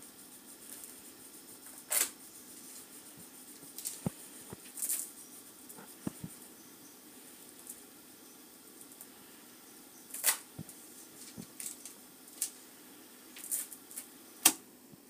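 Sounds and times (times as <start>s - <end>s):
rustling: 0.2s - 6.6s, 10.0s - 14.6s.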